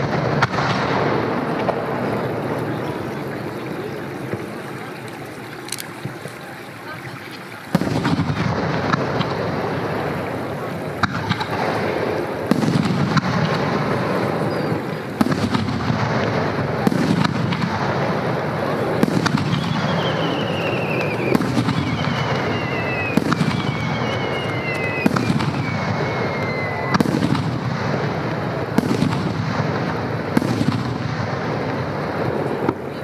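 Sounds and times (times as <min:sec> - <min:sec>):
firework shells booming: 0:00.0 - 0:33.0
high falling whistle: 0:19.6 - 0:27.0.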